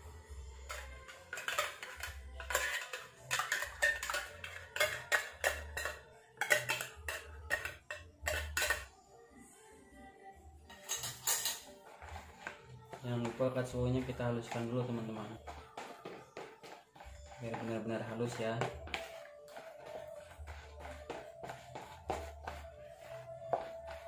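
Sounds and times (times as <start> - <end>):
background music with low beat: 0.0 - 8.9, 10.4 - 24.0
jar clinking against plastic bowl: 0.7 - 8.9.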